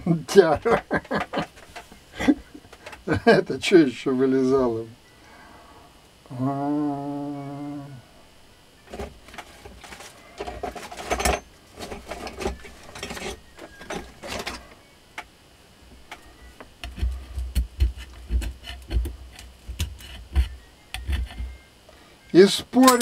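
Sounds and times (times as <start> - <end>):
motor armature scraping and rustling: 8.9 - 14.8.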